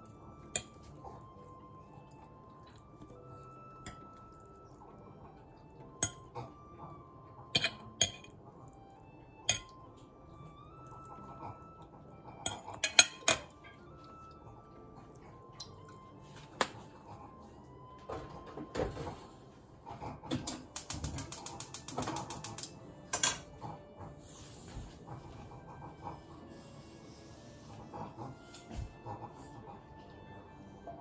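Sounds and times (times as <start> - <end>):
faint background music: 0.0 - 31.0
fork clinking on ceramic plate: 7.6 - 8.3, 12.5 - 13.5.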